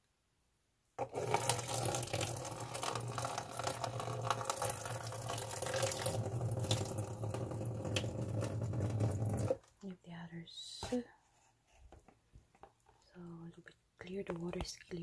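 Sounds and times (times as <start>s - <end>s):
tap water splashing into bowl: 1.3s - 9.6s.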